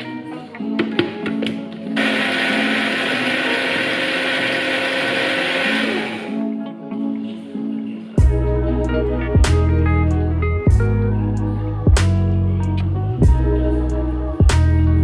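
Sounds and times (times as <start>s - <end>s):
blender running: 2.0s - 6.4s.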